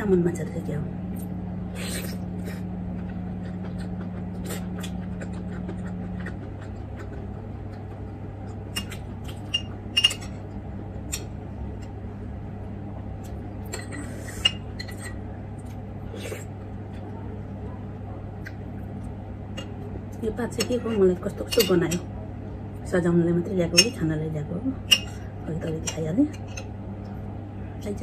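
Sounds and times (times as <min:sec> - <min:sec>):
steady low hum: 0:00.0 - 0:28.0
metal spoon clinking on dishes: 0:09.5 - 0:10.4, 0:20.6 - 0:22.0, 0:23.7 - 0:24.0.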